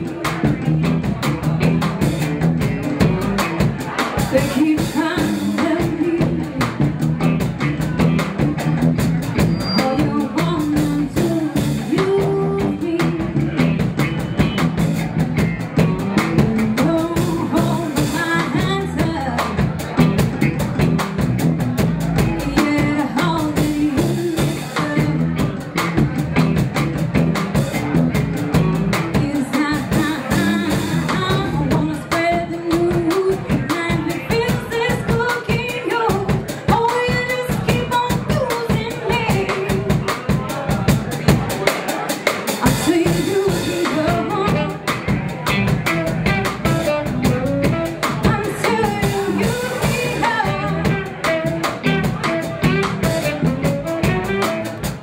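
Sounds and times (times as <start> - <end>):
live band playing: 0.0 - 55.0
woman singing: 4.2 - 6.9, 9.8 - 13.8, 16.2 - 19.7, 22.2 - 25.4, 28.9 - 40.0, 42.6 - 44.9, 47.6 - 51.6.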